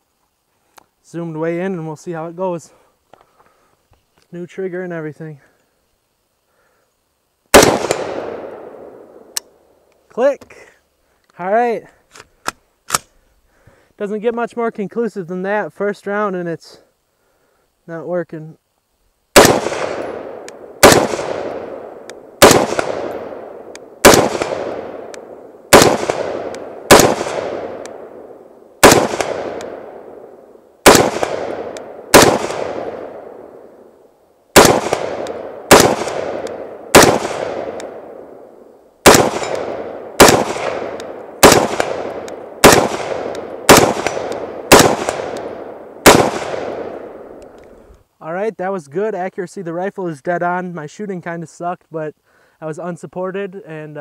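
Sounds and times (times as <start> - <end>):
rifle shots echoing: 7.5 - 9.4, 19.4 - 33.9, 34.5 - 47.4.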